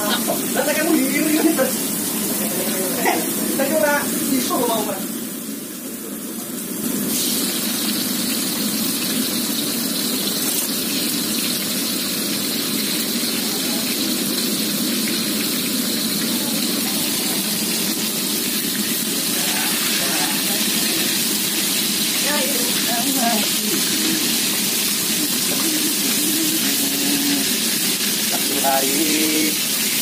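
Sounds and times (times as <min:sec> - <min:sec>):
food frying in oil: 0:00.0 - 0:30.0
gas burner rushing: 0:00.0 - 0:30.0.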